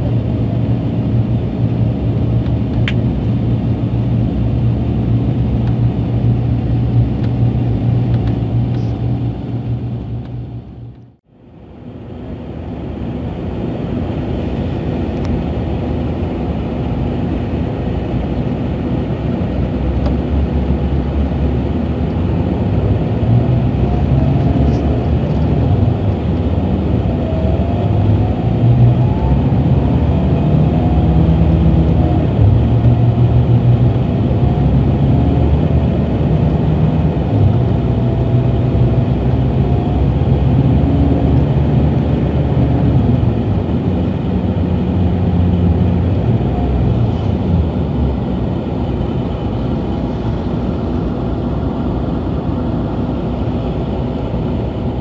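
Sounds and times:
bus diesel engine from inside: 0:00.0 - 0:55.0.

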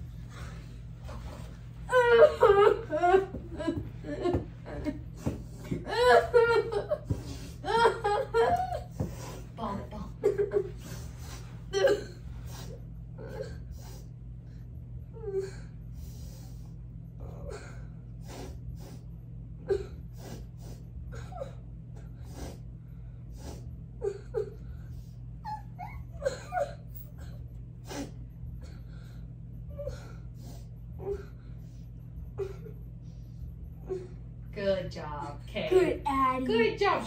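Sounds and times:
puppy whining and whimpering: 0:24.0 - 0:28.1.

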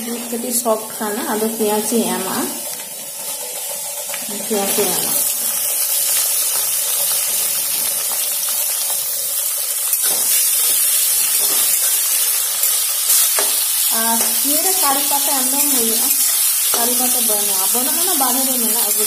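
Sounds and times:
onions sizzling in oil: 0:00.0 - 0:19.0
spatula scraping wok: 0:09.9 - 0:19.0.

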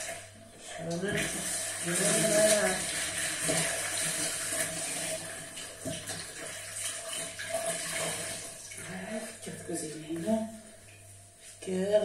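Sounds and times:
water running into a sink: 0:00.0 - 0:09.4.

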